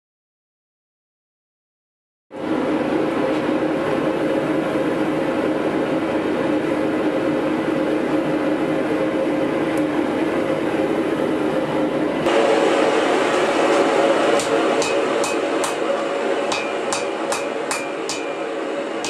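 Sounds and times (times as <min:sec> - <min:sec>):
forge rushing hum: 0:09.2 - 0:19.0.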